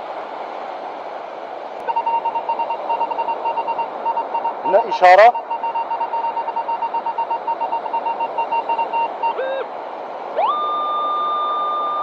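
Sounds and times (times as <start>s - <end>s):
metal detector beeping: 1.9s - 9.6s.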